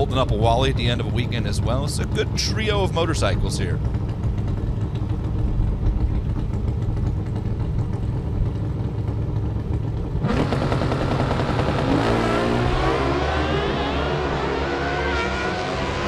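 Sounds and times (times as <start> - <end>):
drag motorcycles accelerating: 9.8 - 16.0.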